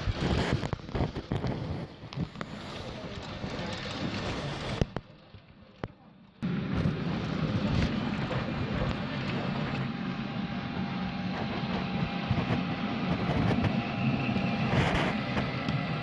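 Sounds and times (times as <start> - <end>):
wheels clicking over rail joints: 0.0 - 10.6
model train wheels rumbling: 0.0 - 16.0.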